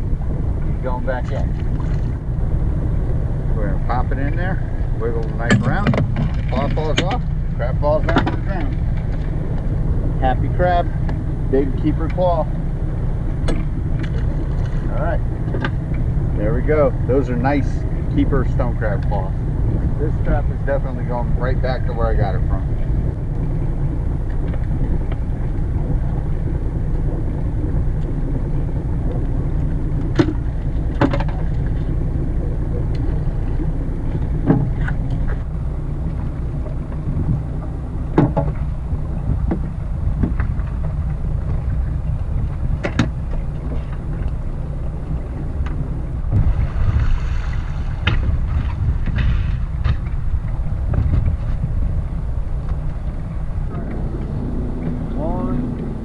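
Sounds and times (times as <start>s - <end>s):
low rumble: 0.0s - 56.0s.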